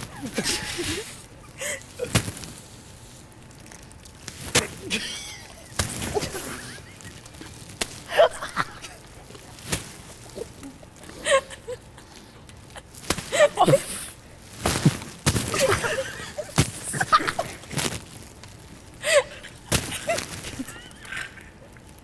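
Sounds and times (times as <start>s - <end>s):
suppressed laughter: 0.0s - 2.1s, 4.8s - 7.5s, 8.1s - 12.1s, 15.5s - 17.6s, 19.0s - 21.8s.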